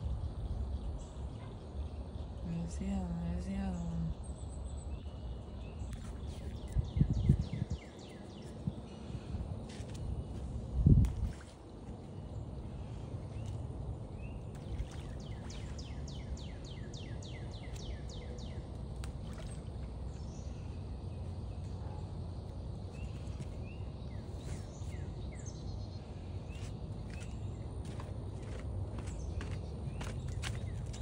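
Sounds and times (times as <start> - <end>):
songbird singing: 0.0 - 31.0
steady low rumble: 0.0 - 31.0.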